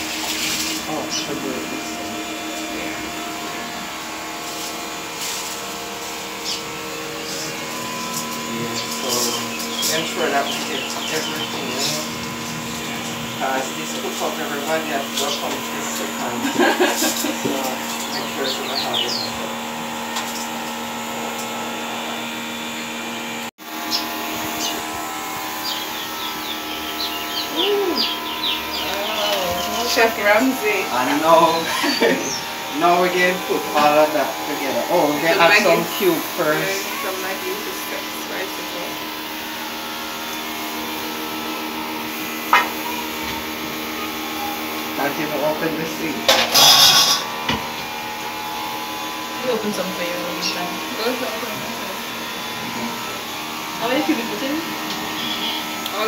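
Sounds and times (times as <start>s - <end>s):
small electric motor whirring: 0.0s - 56.0s
small birds chirping: 6.4s - 14.1s, 17.7s - 19.6s, 23.8s - 32.7s, 55.0s - 56.0s.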